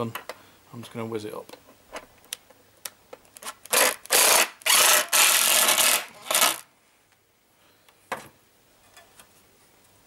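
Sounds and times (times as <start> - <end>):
cordless impact driver running: 3.7 - 6.6.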